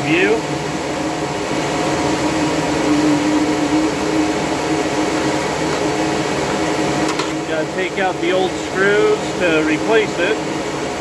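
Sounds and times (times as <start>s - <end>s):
cooling fans rushing air: 0.0s - 11.0s
steady hum: 0.0s - 11.0s.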